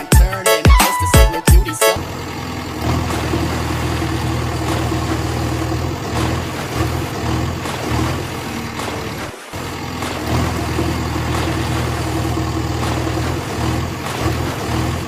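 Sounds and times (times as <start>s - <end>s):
heavy engine rumbling: 0.0s - 15.0s.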